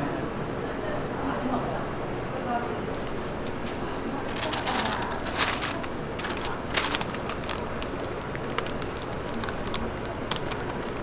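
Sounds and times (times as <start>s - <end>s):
steady background noise: 0.0s - 11.0s
paper rustling and crinkling: 3.5s - 11.0s.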